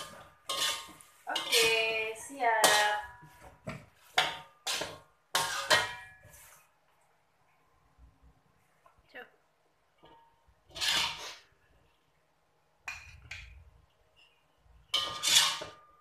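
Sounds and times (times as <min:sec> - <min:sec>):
metal spatula scraping wok: 0:00.0 - 0:06.7, 0:10.0 - 0:11.6, 0:14.2 - 0:16.0.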